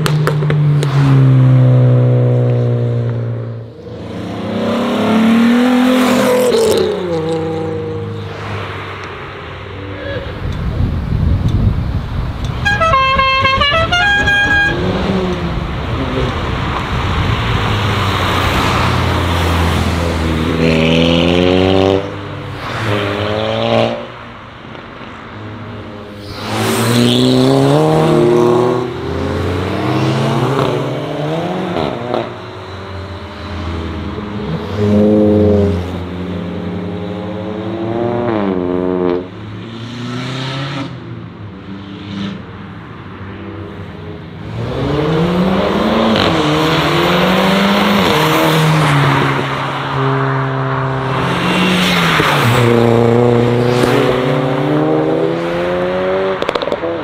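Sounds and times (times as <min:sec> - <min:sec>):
car engines revving past: 0:00.0 - 0:11.4, 0:14.3 - 0:57.0
car horn: 0:12.5 - 0:15.1.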